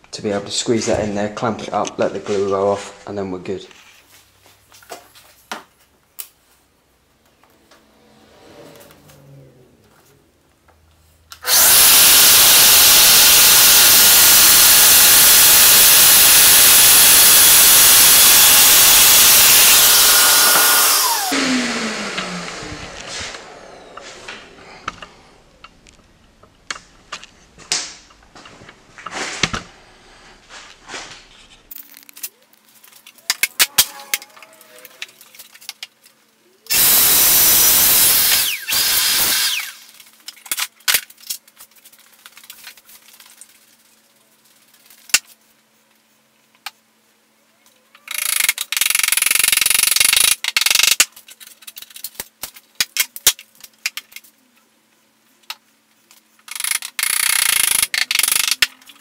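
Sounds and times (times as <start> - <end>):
power tool motor bursts: 11.4 - 24.5, 36.7 - 40.0, 56.5 - 58.6.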